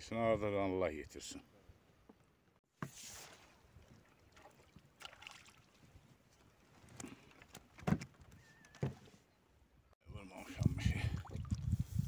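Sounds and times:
water sloshing and splashing: 2.8 - 9.0, 10.4 - 12.0.

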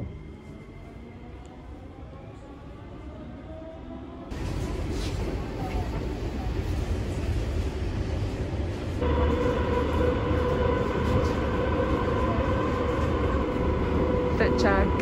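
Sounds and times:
train car rumble: 4.3 - 15.0.

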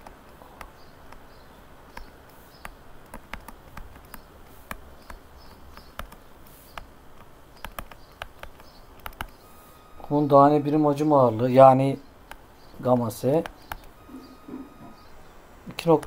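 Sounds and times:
stylus tapping on tablet screen: 1.9 - 9.4.

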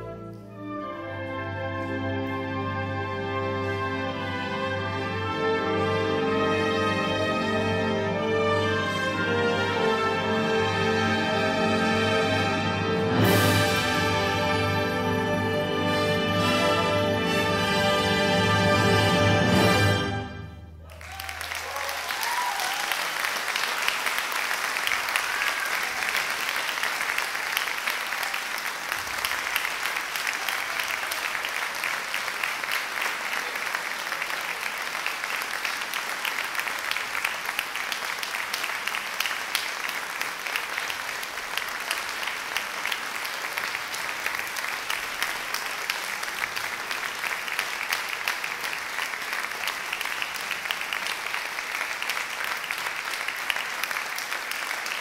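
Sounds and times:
audience applauding: 20.8 - 55.0.

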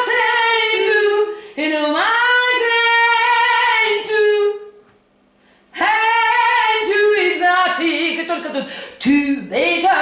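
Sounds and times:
woman singing jazz: 0.0 - 4.8, 5.7 - 10.0.

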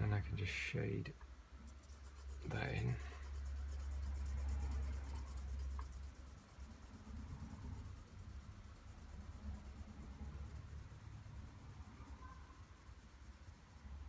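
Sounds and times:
pencil scratching on paper: 1.7 - 14.0.

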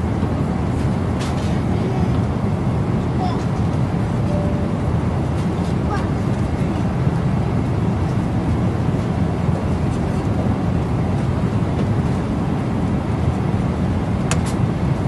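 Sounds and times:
jet airliner cabin noise: 0.0 - 15.0.

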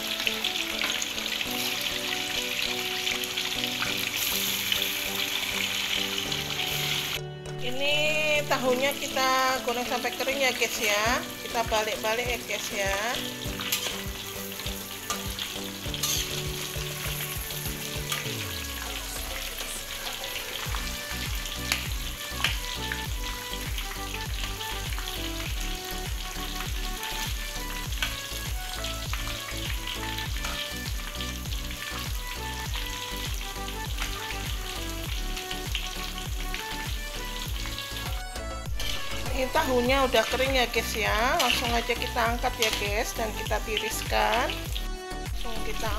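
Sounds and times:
tofu sizzling in hot oil: 0.0 - 7.2, 8.6 - 45.9
metal spatula clinking: 16.0 - 16.3.

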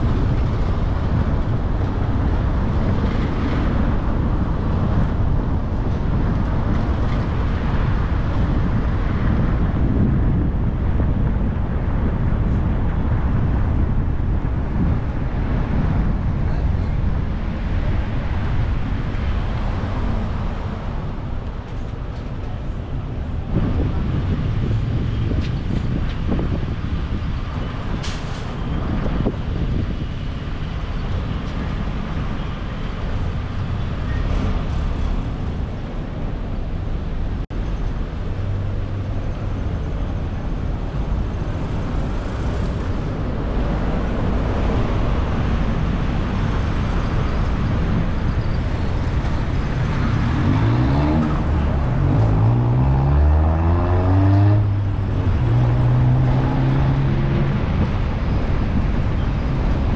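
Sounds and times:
road traffic noise: 0.0 - 59.9
vehicle engine accelerating: 48.6 - 59.8.

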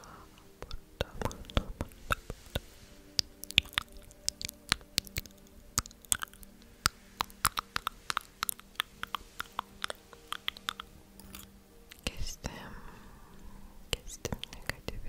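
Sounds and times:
faint low hum: 0.0 - 15.0
close clicking and snapping: 0.6 - 12.0.

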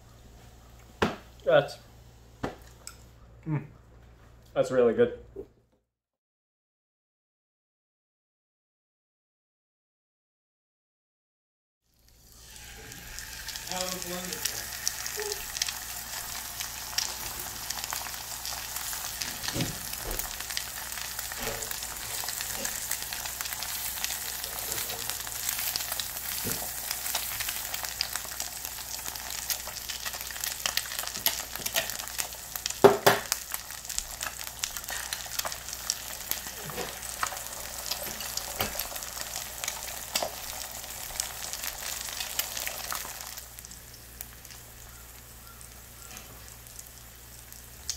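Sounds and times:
eggs sizzling in a pan: 11.9 - 47.9.

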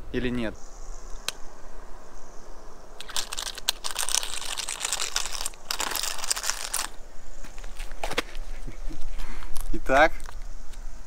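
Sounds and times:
camera glass scraping on asphalt: 3.0 - 7.0.

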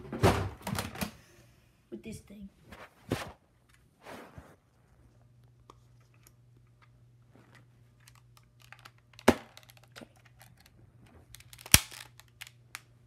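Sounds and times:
plastic toy blaster clicks and rattles: 8.0 - 10.7, 11.3 - 12.8.

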